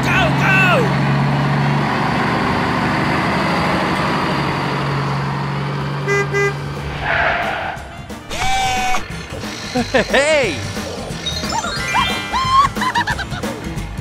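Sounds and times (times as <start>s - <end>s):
truck engine running: 0.0s - 14.0s
truck horn toots: 6.0s - 7.2s.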